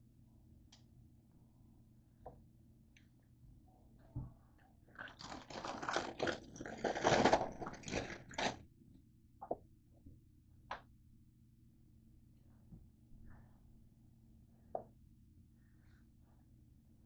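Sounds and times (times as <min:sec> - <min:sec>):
rustling handling noise: 0:05.1 - 0:08.6.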